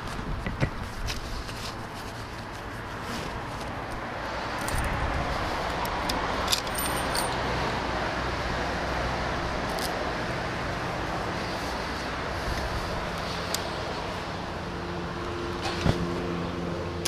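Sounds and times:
keys jingling: 0:04.6 - 0:04.9, 0:06.4 - 0:07.4.

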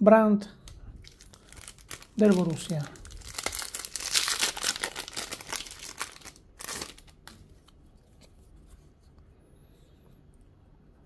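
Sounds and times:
foil wrapper crinkling: 0:00.8 - 0:07.5.

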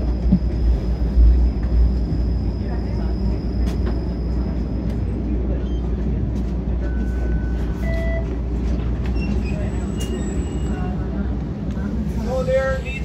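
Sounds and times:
streetcar rumbling: 0:00.0 - 0:13.0
faint short squeaks: 0:09.0 - 0:10.9.

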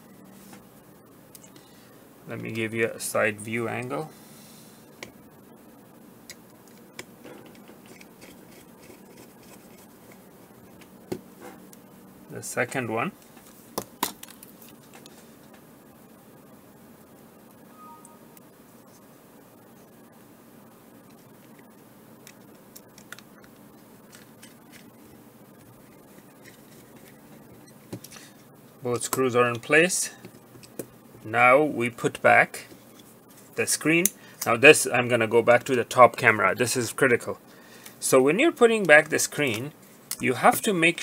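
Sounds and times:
steady low hiss: 0:00.0 - 0:41.0
screwdriver clicks and scratches: 0:06.3 - 0:10.2.

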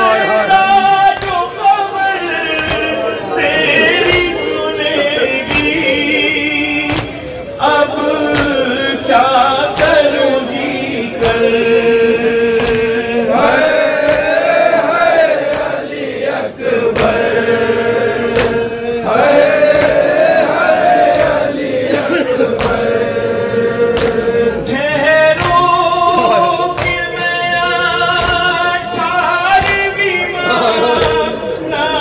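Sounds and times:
men chanting: 0:00.0 - 0:32.0
sharp rhythmic beats: 0:00.0 - 0:32.0.

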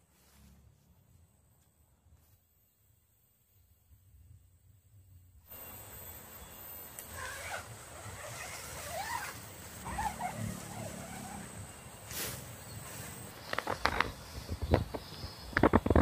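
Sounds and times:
tent fabric rustling: 0:07.0 - 0:14.5
brief hiss: 0:12.0 - 0:13.3.

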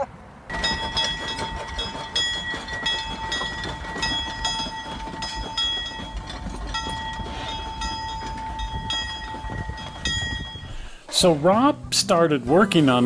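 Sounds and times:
steam locomotive bell ringing: 0:00.5 - 0:11.4
train running rumble: 0:00.5 - 0:11.9.

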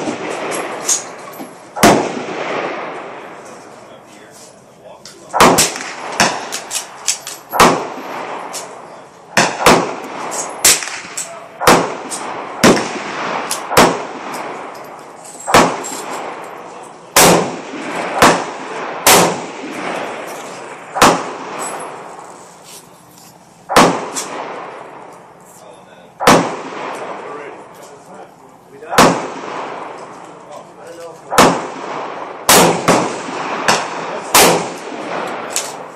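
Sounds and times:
gunshots with echo: 0:00.0 - 0:03.4, 0:05.3 - 0:14.9, 0:15.5 - 0:22.1, 0:23.7 - 0:25.1, 0:26.2 - 0:27.6, 0:28.8 - 0:30.1, 0:31.2 - 0:35.9.

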